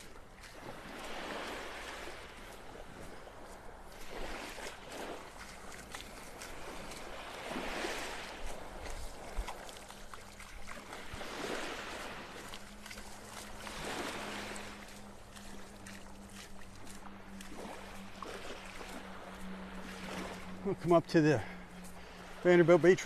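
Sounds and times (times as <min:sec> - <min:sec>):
small waves lapping on sand: 0:00.0 - 0:23.0.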